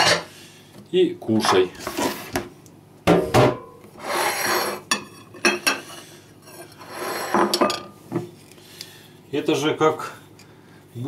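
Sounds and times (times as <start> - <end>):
plate scraping on table: 4.0 - 7.8
ceramic plates clattering: 6.8 - 7.9.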